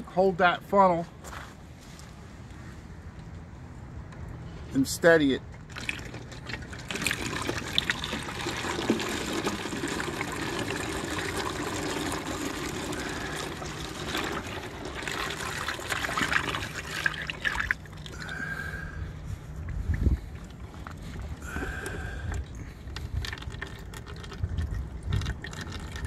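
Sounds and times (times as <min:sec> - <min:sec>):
oil pouring into a funnel: 0:05.5 - 0:18.9, 0:19.8 - 0:26.0.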